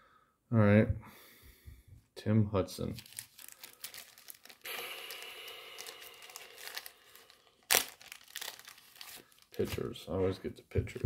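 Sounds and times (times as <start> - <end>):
crinkly plastic rustling: 2.8 - 10.2.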